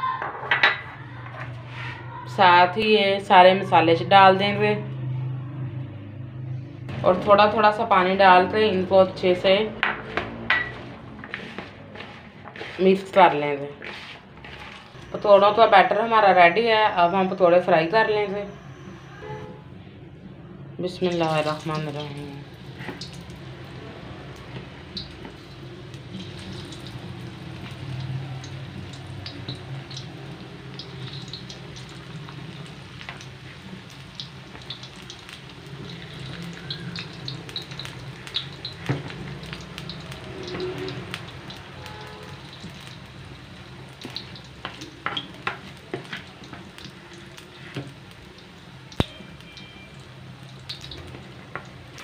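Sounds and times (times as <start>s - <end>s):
food deep-frying in oil: 20.9s - 52.0s.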